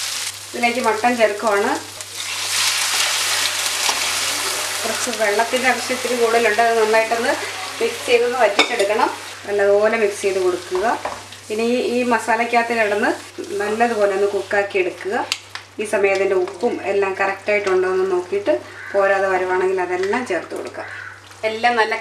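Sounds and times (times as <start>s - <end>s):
meat sizzling in a pan: 0.0s - 14.9s
spatula stirring meat: 2.1s - 8.9s.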